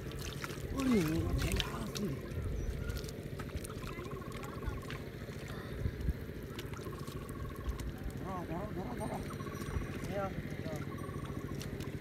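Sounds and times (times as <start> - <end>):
hands splashing in water: 0.0 - 5.6.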